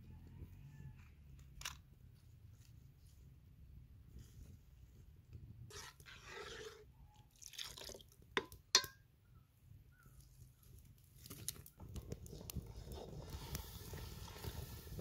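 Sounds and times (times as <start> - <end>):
metal ladle stirring milk in pot: 5.7 - 9.0, 12.2 - 15.0
ladle clinking against pot: 8.4 - 9.0
wood fire crackling: 10.3 - 15.0
firewood pushed into fire: 11.3 - 15.0.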